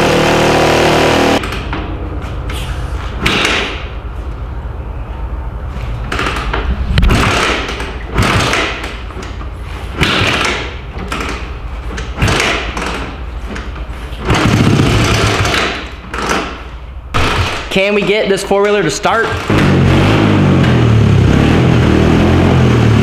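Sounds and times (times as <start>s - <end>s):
engine turning over without starting: 6.1s - 8.9s, 14.2s - 16.6s, 19.2s - 22.6s.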